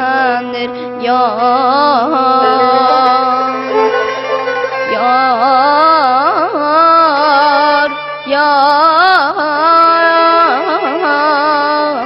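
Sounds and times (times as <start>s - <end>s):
person singing with warbling trills: 0.0s - 9.6s.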